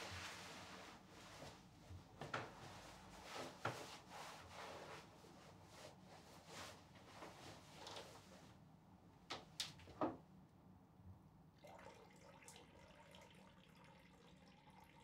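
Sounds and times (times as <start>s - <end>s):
low room hum: 0.0s - 15.0s
person urinating into toilet: 11.6s - 15.0s.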